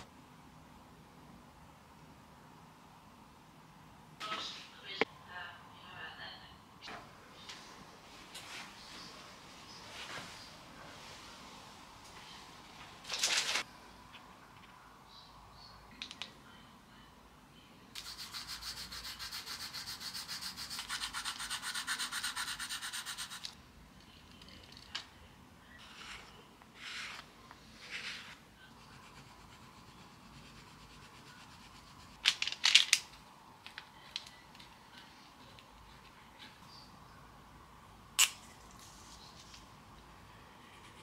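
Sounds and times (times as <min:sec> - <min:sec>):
pencil scribbling on paper: 0:18.0 - 0:23.4, 0:28.8 - 0:32.1
pencil rubbing strokes: 0:18.0 - 0:23.5, 0:25.8 - 0:32.2.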